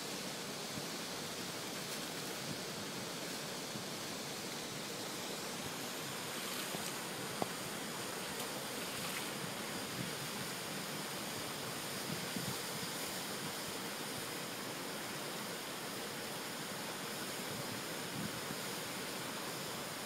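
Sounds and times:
elephant spraying water: 0.0s - 20.0s.

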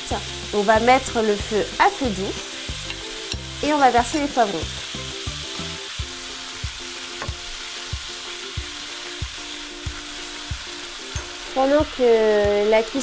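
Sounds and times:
meat and peppers sizzling in a wok: 0.0s - 13.0s.

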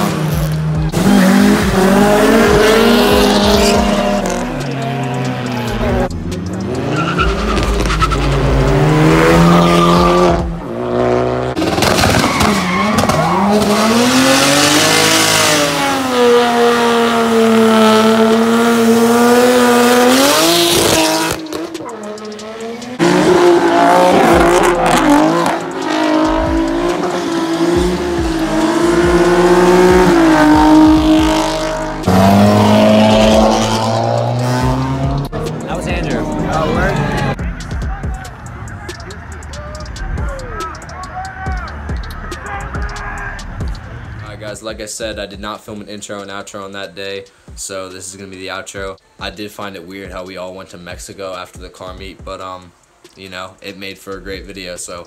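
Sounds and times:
car engines revving high: 0.0s - 44.5s
tyre squeal: 11.9s - 13.9s.

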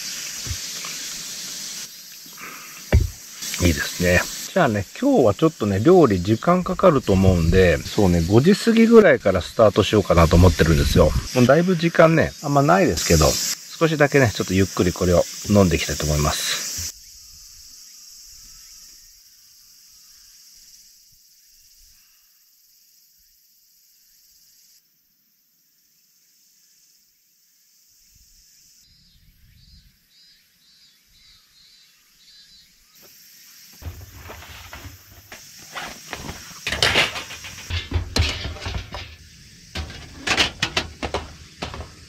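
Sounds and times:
faint pulsing insect call: 0.0s - 42.0s
insects chirping: 0.0s - 42.0s
metal camp stove parts knocking: 2.9s - 3.2s, 33.8s - 42.0s.

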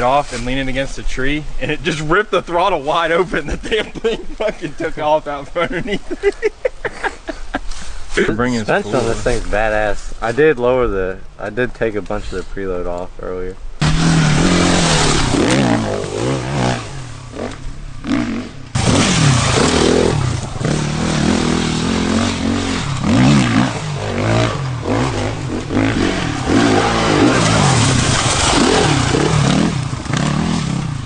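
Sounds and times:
dirt bike engine revving: 13.8s - 31.0s.

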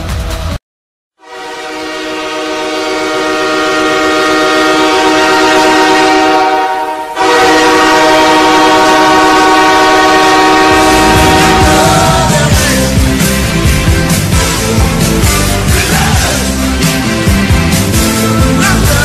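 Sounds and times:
goal horn chord: 1.2s - 13.0s.

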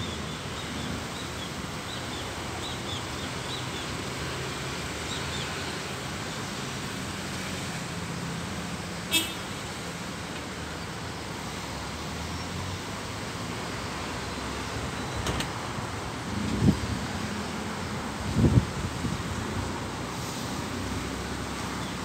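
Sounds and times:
low traffic hum: 0.0s - 22.0s.

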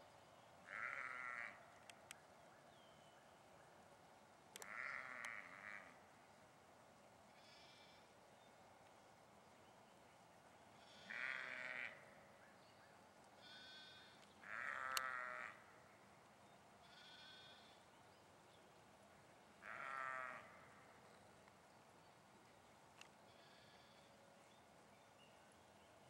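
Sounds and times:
sheep bleating: 0.7s - 1.6s, 4.6s - 6.0s, 10.9s - 12.0s, 13.4s - 15.6s, 16.8s - 17.7s, 19.6s - 20.6s.

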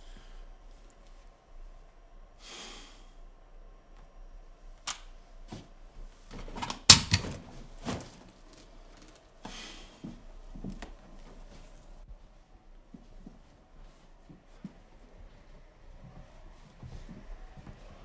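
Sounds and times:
man breathing out heavily: 2.4s - 3.3s, 9.5s - 10.1s.

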